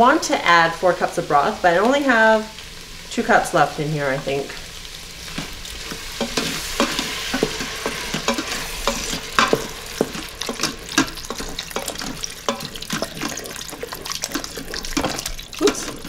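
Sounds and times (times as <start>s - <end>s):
vegetables sizzling in a pot: 0.0s - 16.0s
broth pouring: 4.6s - 16.0s
wooden spoon knocking on pot: 6.2s - 16.0s.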